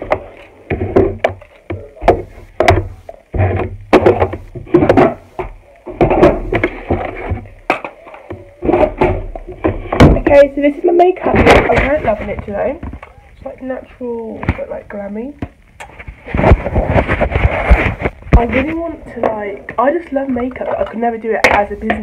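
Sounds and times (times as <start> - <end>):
makeup items knocking and clattering: 0.0 - 10.4.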